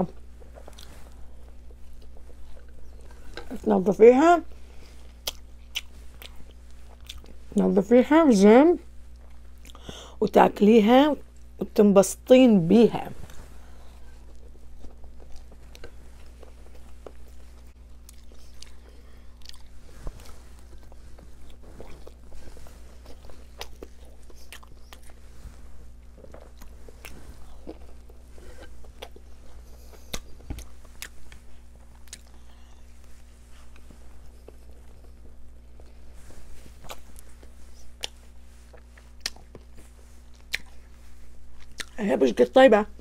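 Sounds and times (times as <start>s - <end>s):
person chewing wet food: 0.0s - 3.6s, 4.6s - 7.5s, 9.1s - 9.9s, 13.6s - 42.0s
lip smacks and clicks: 30.0s - 32.3s, 38.8s - 39.7s.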